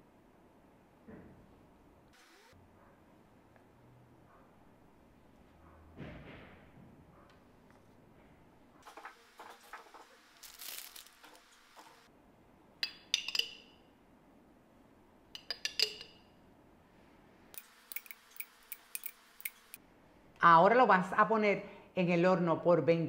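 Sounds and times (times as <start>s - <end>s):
spoon clicking on metal tin: 12.8s - 13.6s, 15.4s - 16.2s, 17.6s - 19.7s
metal spoon clinking on container: 12.8s - 13.7s, 15.4s - 16.2s, 17.6s - 19.7s.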